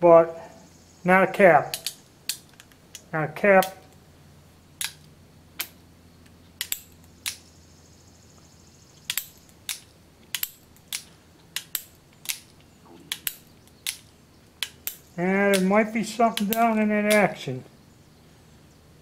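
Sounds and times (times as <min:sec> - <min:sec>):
revolver hammer clicks: 0:01.7 - 0:03.0, 0:04.8 - 0:07.4, 0:09.0 - 0:15.7.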